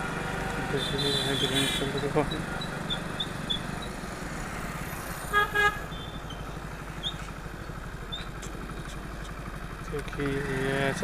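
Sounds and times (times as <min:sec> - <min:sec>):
motorcycle engine running: 0:00.0 - 0:11.0
vehicle horn double honk: 0:00.7 - 0:03.0, 0:05.3 - 0:06.2.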